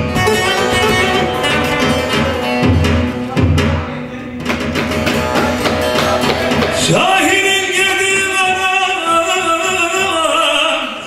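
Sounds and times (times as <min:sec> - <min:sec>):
amplified saz strummed rapidly: 0:00.0 - 0:11.0
man singing: 0:04.9 - 0:11.0.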